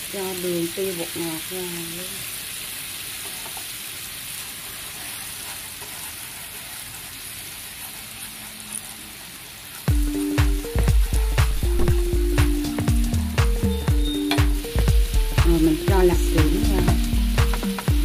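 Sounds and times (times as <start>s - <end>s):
sauce sizzling in frying pan: 0.0s - 18.0s
chopsticks stirring: 4.6s - 18.0s
background music with beat: 9.9s - 18.0s.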